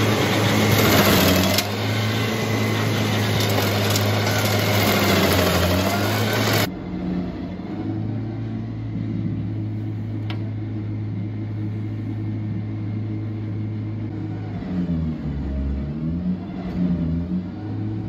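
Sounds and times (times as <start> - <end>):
stump grinder engine running: 0.0 - 6.7.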